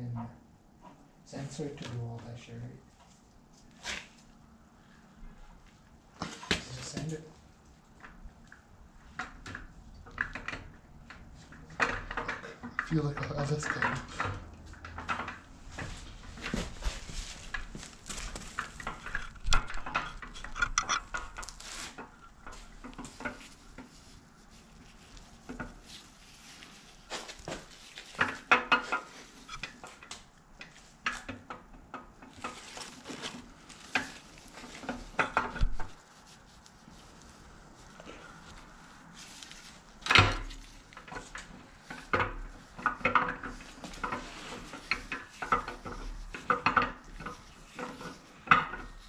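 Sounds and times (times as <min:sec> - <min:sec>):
metal clinks and knocks: 0:18.2 - 0:23.5.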